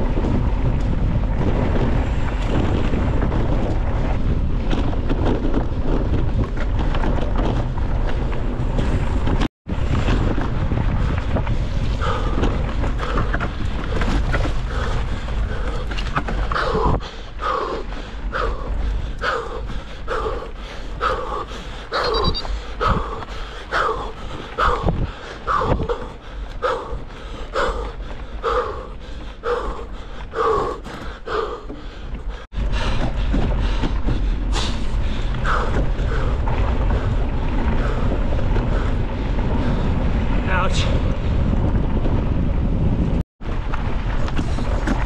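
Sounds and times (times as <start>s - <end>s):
wind rushing on microphone: 0.0s - 45.0s
heavy rhythmic breathing: 11.9s - 40.1s.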